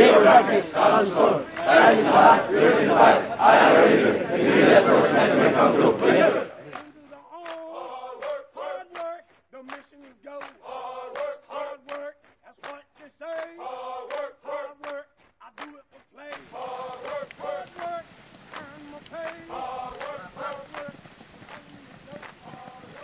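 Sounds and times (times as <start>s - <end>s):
background hiss: 0.0s - 9.1s, 16.3s - 23.0s
men chanting marching cadence: 0.0s - 23.0s
marching footfalls: 16.4s - 23.0s.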